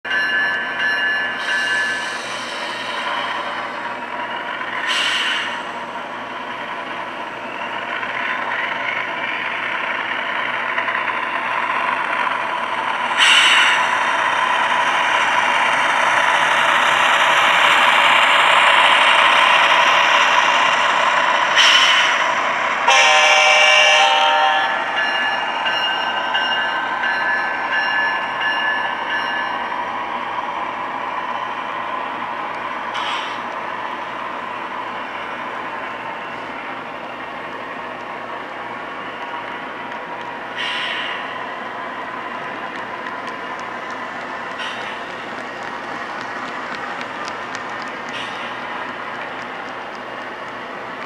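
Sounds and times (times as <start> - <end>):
train rolling past: 0.1 - 51.0
locomotive horn: 22.8 - 24.9.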